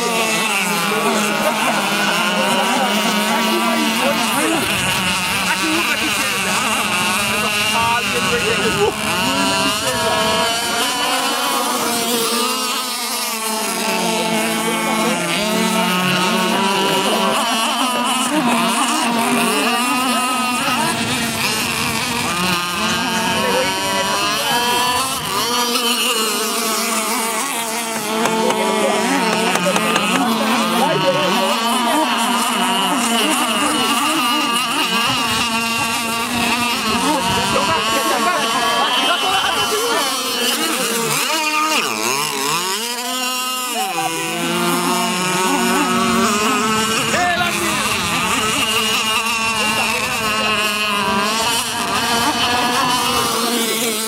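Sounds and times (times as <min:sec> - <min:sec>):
high-revving boat motors: 0:00.0 - 0:54.0.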